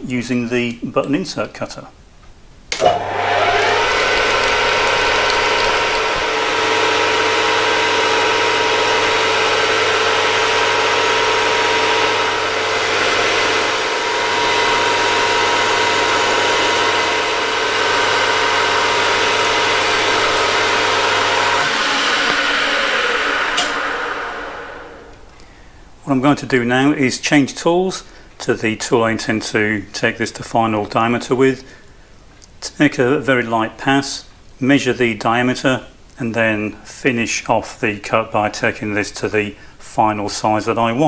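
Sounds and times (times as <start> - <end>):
lathe spinning down: 2.7 - 25.4
metal lathe whining: 2.8 - 25.2.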